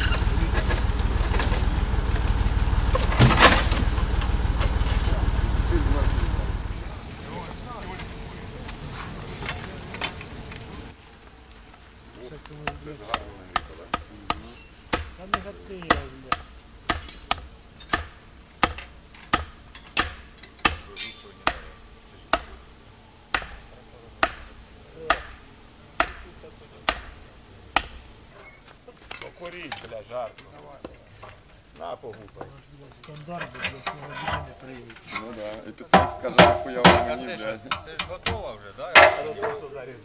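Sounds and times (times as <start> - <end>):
forge fire rushing: 0.0 - 11.0.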